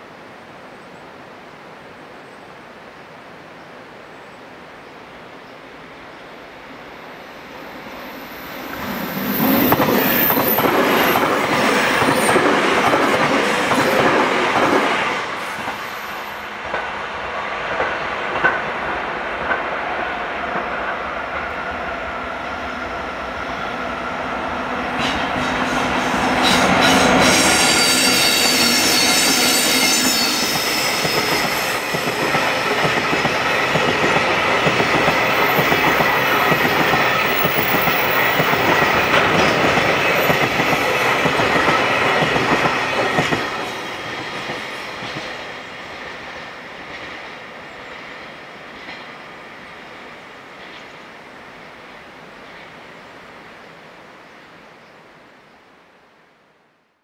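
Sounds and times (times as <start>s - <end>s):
freight train passing: 5.7s - 54.2s
high wheel squeal: 7.9s - 11.9s, 25.4s - 32.0s.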